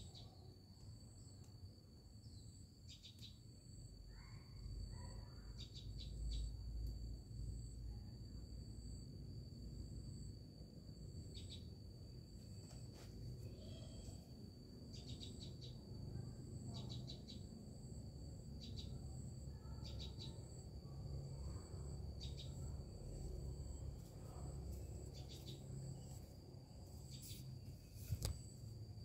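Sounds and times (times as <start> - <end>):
high-pitched insect drone: 13.4 - 29.0.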